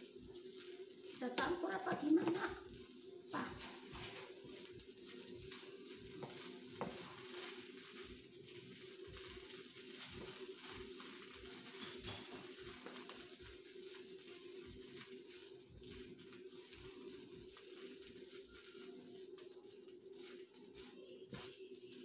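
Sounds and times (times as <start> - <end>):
noodles sizzling in pan: 0.0 - 22.0
spatulas tapping and scraping pan: 5.5 - 8.1, 11.6 - 13.2.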